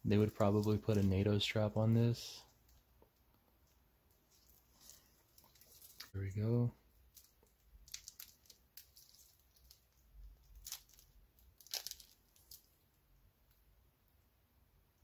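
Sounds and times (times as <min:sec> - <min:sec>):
plastic wrap crinkling: 0:00.1 - 0:01.6, 0:04.2 - 0:06.2, 0:06.9 - 0:13.0.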